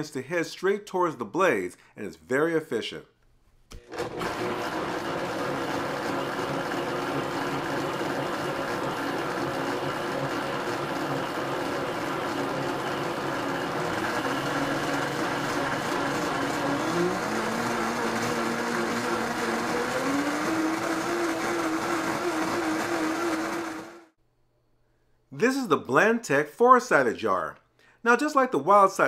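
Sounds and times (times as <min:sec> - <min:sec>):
blender motor droning: 0:03.8 - 0:24.2.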